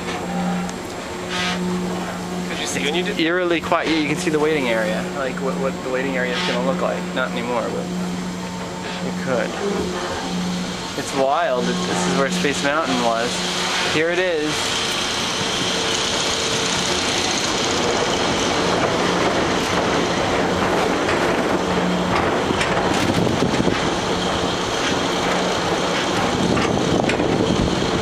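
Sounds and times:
ride vehicle rolling on track: 0:00.0 - 0:28.0.

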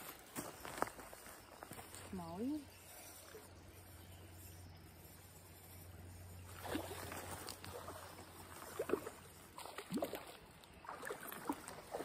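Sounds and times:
water splashing: 0:06.5 - 0:12.0.

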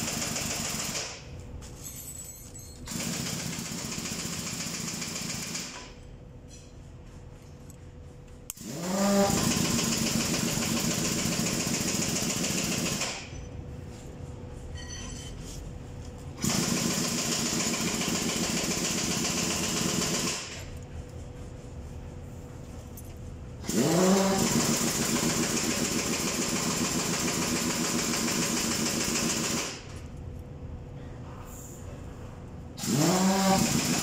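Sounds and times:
motor running: 0:23.6 - 0:26.9.

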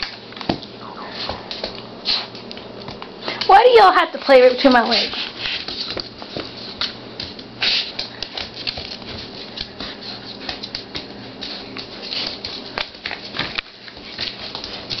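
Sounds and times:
puppies scuffling: 0:00.0 - 0:15.0
puppy claws clicking on tile: 0:04.5 - 0:15.0.

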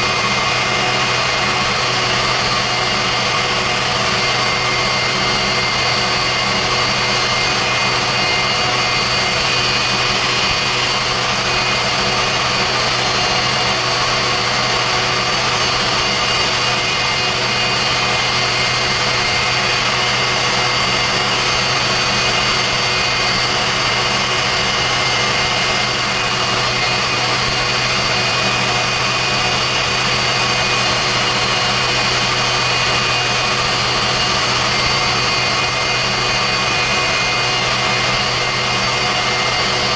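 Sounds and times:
jet engine exhaust rush: 0:00.0 - 0:39.9
jet engine high whine: 0:00.0 - 0:39.9.

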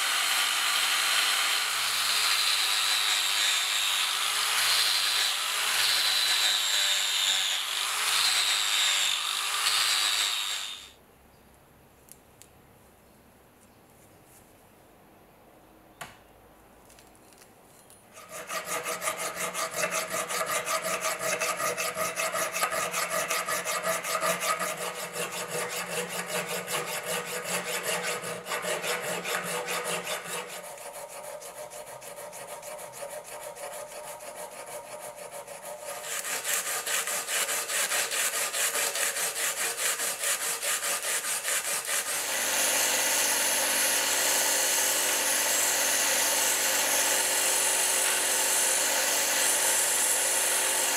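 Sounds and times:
sandpaper rasping on steel: 0:18.2 - 0:42.4.

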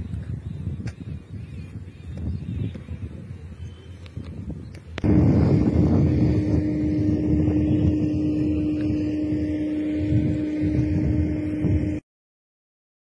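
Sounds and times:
wind noise on microphone: 0:00.0 - 0:12.0
vehicle rumbling: 0:05.0 - 0:12.0.

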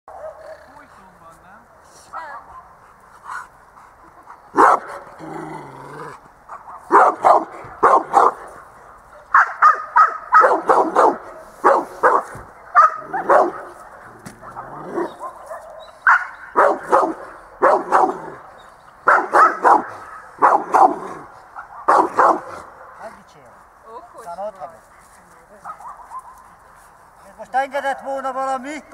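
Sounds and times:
dog barking loudly: 0:00.1 - 0:00.4, 0:04.5 - 0:05.1, 0:06.5 - 0:08.7, 0:09.3 - 0:18.4, 0:19.0 - 0:23.0.

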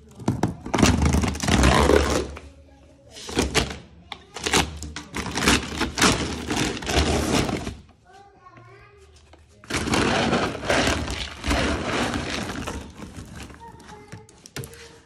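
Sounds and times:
plastic sack crinkling: 0:04.4 - 0:07.8, 0:09.7 - 0:13.8.

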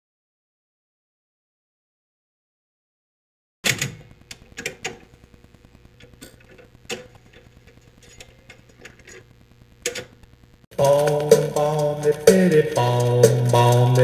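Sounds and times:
vinyl clicks and pops: 0:03.6 - 0:12.3
faint steady hum: 0:03.7 - 0:14.0.

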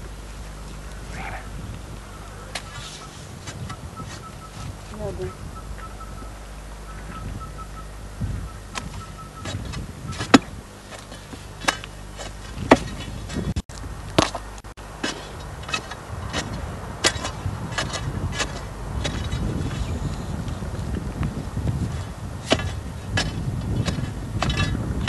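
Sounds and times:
soil scraping: 0:00.0 - 0:05.4, 0:08.7 - 0:25.0
digging tool striking earth: 0:02.5 - 0:04.4, 0:08.7 - 0:20.3, 0:21.6 - 0:25.0.

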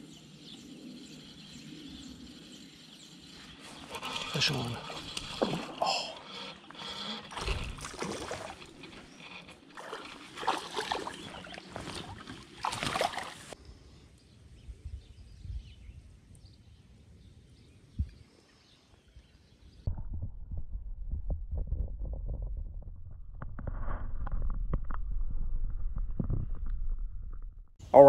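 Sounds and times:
faint creek ambience: 0:00.0 - 0:14.3
water splashing and sloshing: 0:03.5 - 0:13.6
muffled underwater rumble: 0:19.9 - 0:27.8.

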